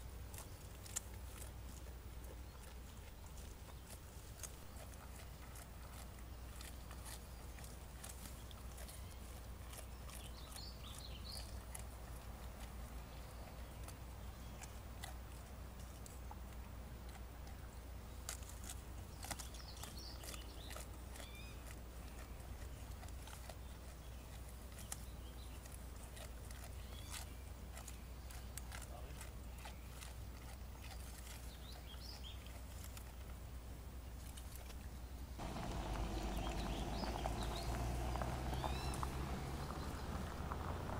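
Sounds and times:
high chirps: 35.4 - 39.1
low outdoor rumble: 35.4 - 40.9.

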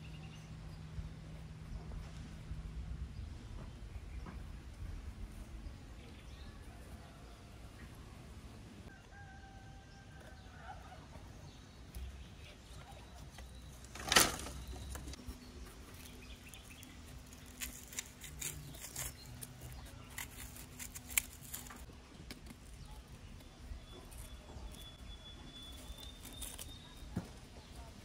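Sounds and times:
knives clicking and scraping on wood: 15.9 - 22.8.

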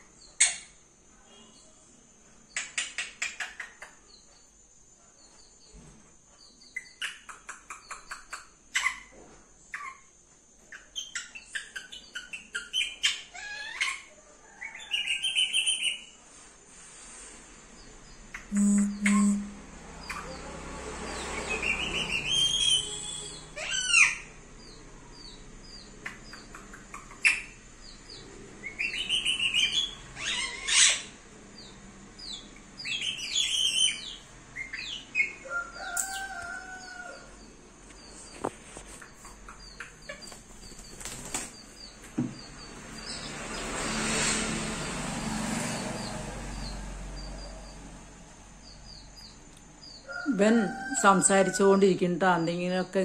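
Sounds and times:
parakeet squawking and calling: 10.8 - 14.1, 18.3 - 24.8, 26.3 - 27.6, 28.6 - 37.2
faint quick chirps: 18.3 - 20.4
parakeet whistled notes: 18.5 - 19.6
rustling: 37.8 - 39.4.

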